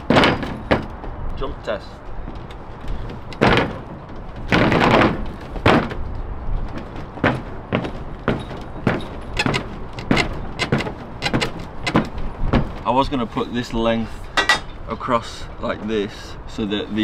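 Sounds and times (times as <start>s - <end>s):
person jumping on wooden platform: 0.0s - 1.3s, 2.2s - 12.9s.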